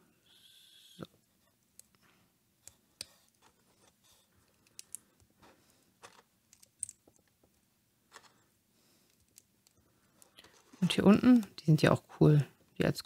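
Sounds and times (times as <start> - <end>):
plastic bricks clicking: 4.6 - 5.1, 6.0 - 7.3.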